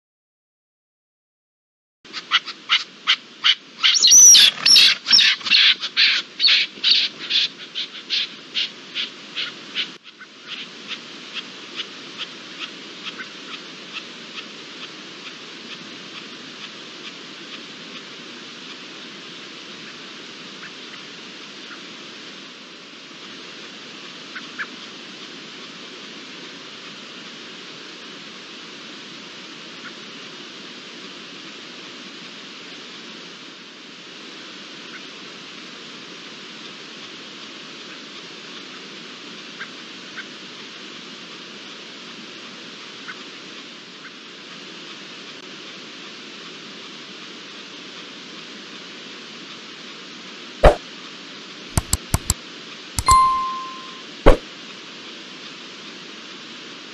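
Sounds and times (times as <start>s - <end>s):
steady hiss: 2.1s - 56.9s.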